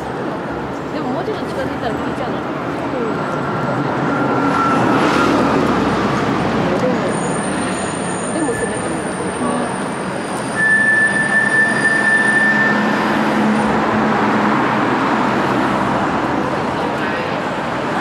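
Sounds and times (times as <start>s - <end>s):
heavy vehicle passing: 0.0s - 10.5s, 11.7s - 18.0s
high-pitched squeal: 4.0s - 5.7s, 7.1s - 13.8s.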